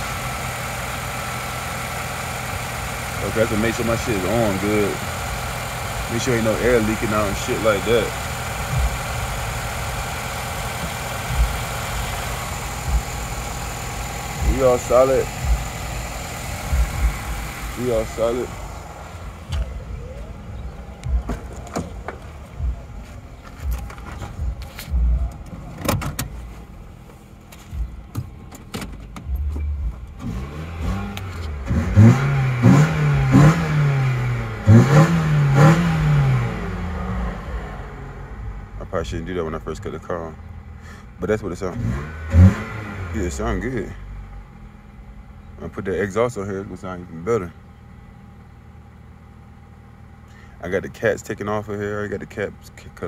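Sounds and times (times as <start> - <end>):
car engine idling: 0.0 - 53.0
dull low thumps: 5.0 - 39.2.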